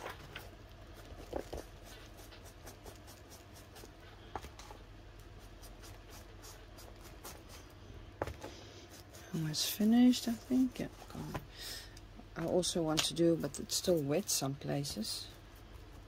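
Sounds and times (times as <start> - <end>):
tool scratching on paper: 1.6 - 4.0, 5.4 - 7.7, 8.8 - 10.4.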